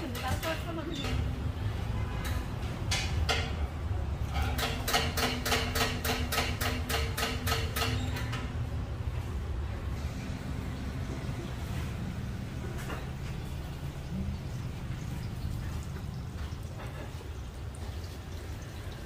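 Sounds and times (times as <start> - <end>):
low rumble of street noise: 0.0 - 19.0
sharp metal knocks: 2.2 - 8.6.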